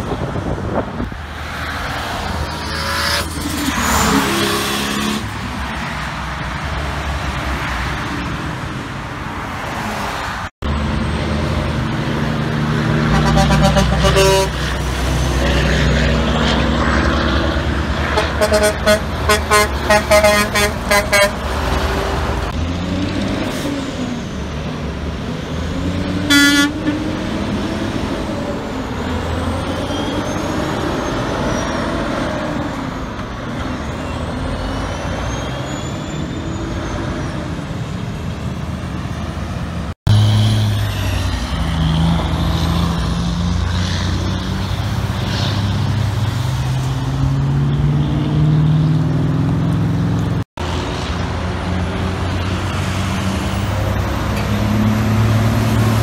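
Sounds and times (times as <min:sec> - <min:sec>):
diesel trucks driving past: 0:00.0 - 0:56.0
horn toot: 0:13.0 - 0:15.8, 0:18.1 - 0:21.5, 0:26.3 - 0:27.1.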